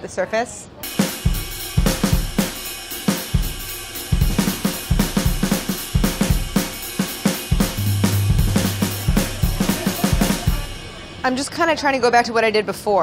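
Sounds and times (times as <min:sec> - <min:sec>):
drum-kit groove: 0:00.8 - 0:11.0.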